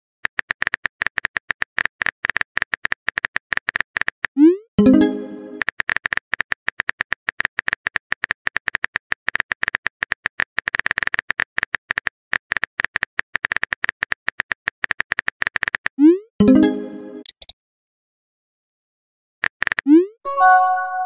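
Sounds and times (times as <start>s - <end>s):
keyboard typing clicks: 4.8s - 17.5s.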